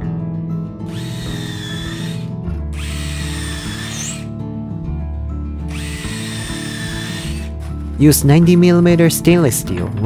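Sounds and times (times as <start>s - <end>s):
impact driver drilling wood: 0.9s - 4.3s, 5.7s - 7.7s.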